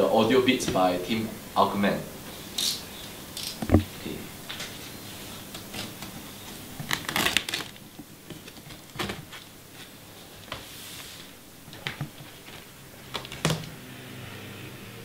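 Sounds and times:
packing tape peeling off cardboard: 0:05.6 - 0:09.4.

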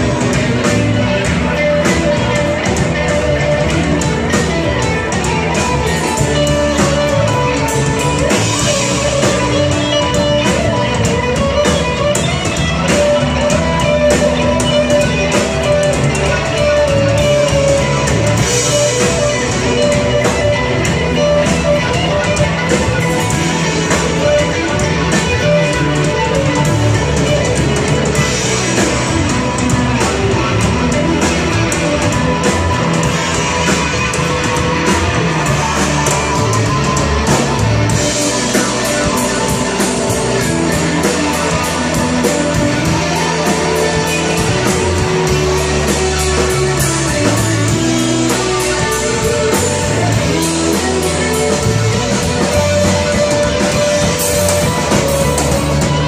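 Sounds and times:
drum kit: 0:00.0 - 0:56.0
electric guitar: 0:00.0 - 0:56.0.

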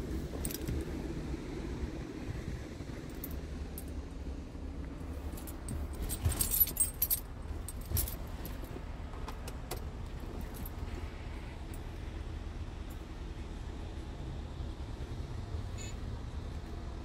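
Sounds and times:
diesel truck engine idling: 0:00.0 - 0:17.0
metallic jingling: 0:05.2 - 0:08.7.

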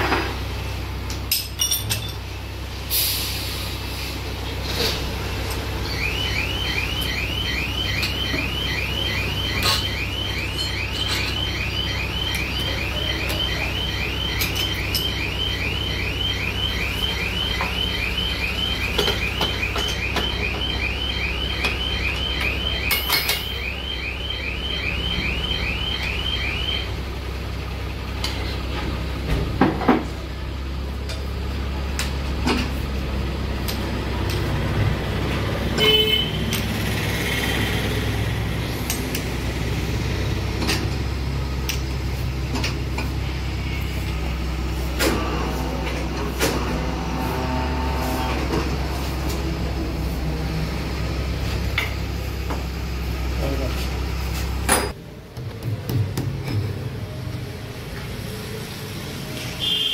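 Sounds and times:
repeating chirping beep: 0:05.8 - 0:26.9
grinding machine humming: 0:45.2 - 0:51.9.

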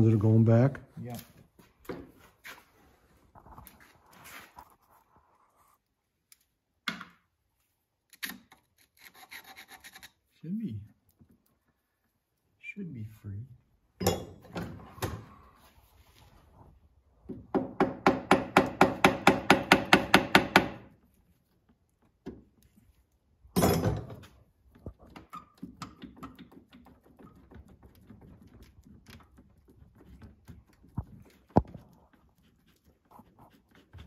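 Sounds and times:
hammer tapping on metal: 0:17.5 - 0:20.8.

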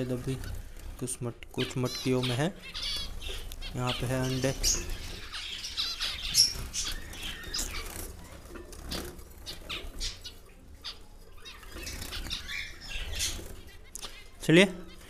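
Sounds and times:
finches calling: 0:01.5 - 0:15.0
wings fluttering: 0:02.6 - 0:15.0.

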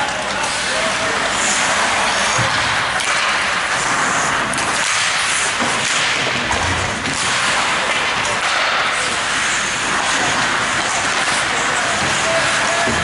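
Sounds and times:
arena noise: 0:00.0 - 0:13.0
skates hissing on ice: 0:03.0 - 0:06.0, 0:08.4 - 0:12.8.

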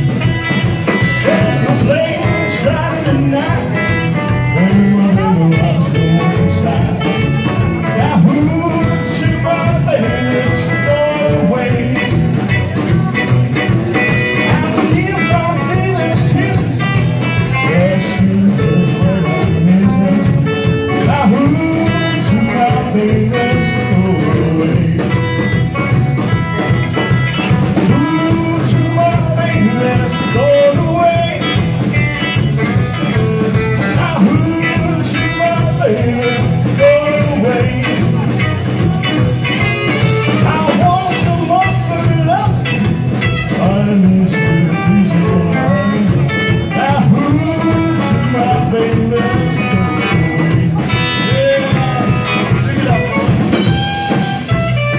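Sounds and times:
acoustic and electric guitars: 0:00.0 - 0:54.9
drum kit: 0:00.0 - 0:54.9
man singing: 0:00.0 - 0:54.9
upright double bass: 0:00.0 - 0:54.9.

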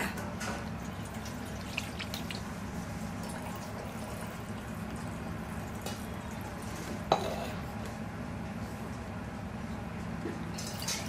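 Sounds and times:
water splashing on steel plate: 0:00.8 - 0:02.5
water dripping: 0:00.8 - 0:02.6.

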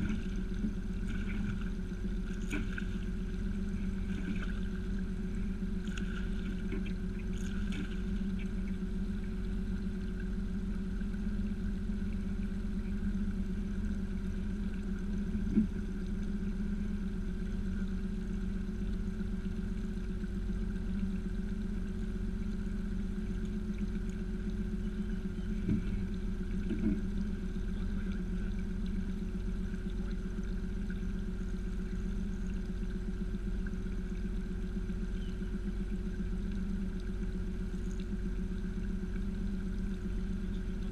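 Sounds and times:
water splash: 0:00.0 - 0:05.1, 0:05.8 - 0:08.6
boat motor running: 0:00.0 - 0:40.9.

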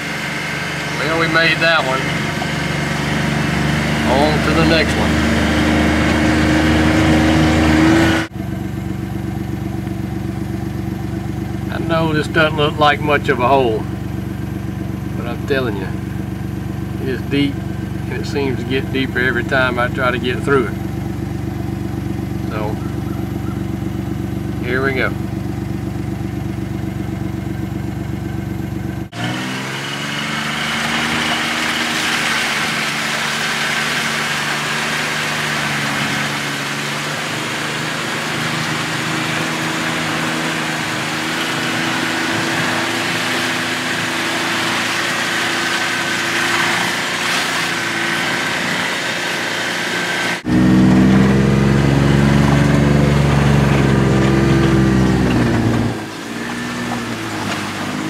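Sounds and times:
vehicle engine running: 0:00.0 - 0:58.0
water splashing: 0:30.0 - 0:50.1.

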